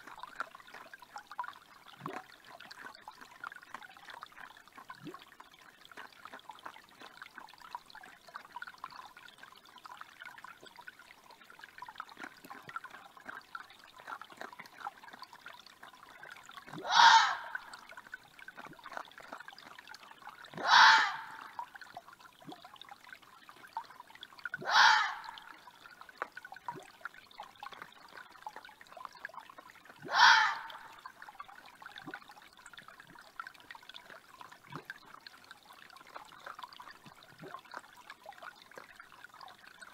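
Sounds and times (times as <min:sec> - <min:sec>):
creek trickling: 0:00.0 - 0:39.9
fox harsh protest calls: 0:16.9 - 0:17.6, 0:20.6 - 0:21.4, 0:24.6 - 0:25.3, 0:30.1 - 0:30.8.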